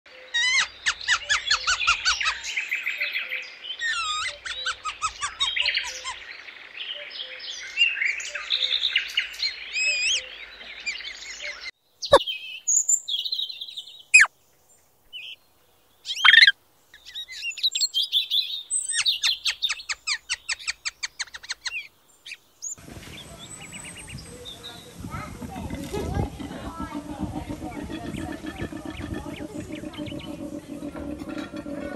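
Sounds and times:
small birds chirping and trilling: 16.0 - 31.9.

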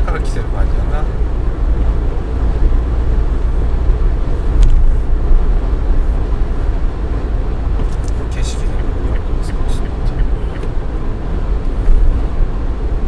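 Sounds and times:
road and wind noise in car: 0.0 - 13.0.

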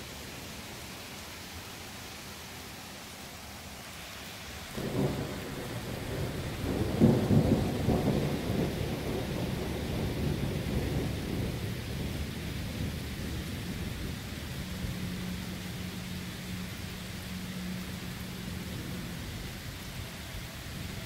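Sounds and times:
rain hissing: 0.0 - 21.0
thunder rumbling: 4.7 - 15.2.

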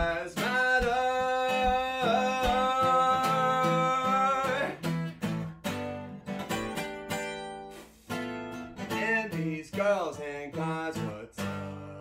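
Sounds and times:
acoustic guitar strumming: 0.0 - 12.0.

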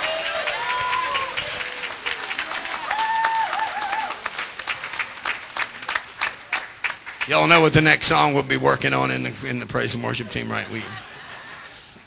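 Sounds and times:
crowd clapping: 0.0 - 7.9.

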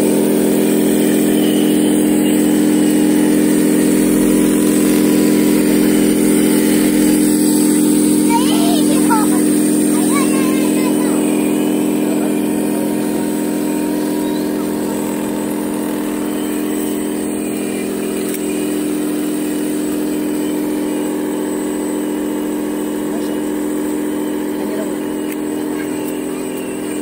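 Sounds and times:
toy truck electric motor humming: 0.0 - 27.0.

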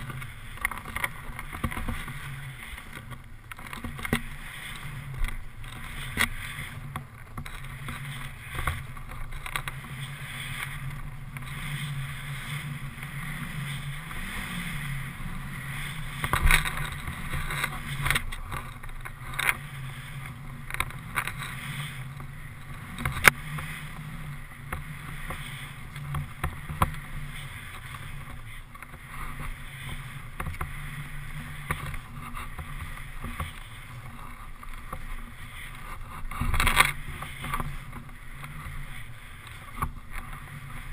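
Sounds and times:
skis rushing through powder snow: 0.0 - 40.9.

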